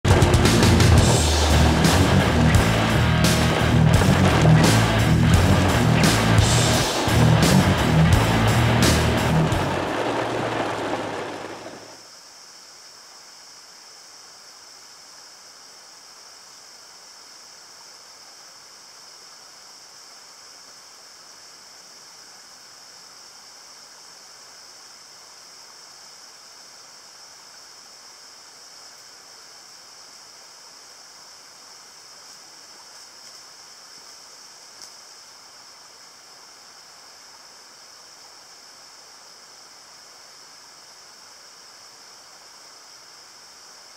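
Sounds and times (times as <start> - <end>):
creek rushing: 0.0 - 12.0
music: 0.1 - 10.6.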